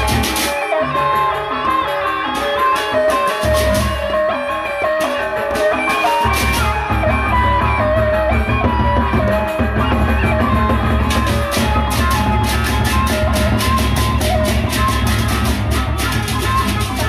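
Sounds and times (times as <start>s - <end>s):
cymbals clashing: 0.0s - 8.5s
big drums beating: 5.5s - 17.0s.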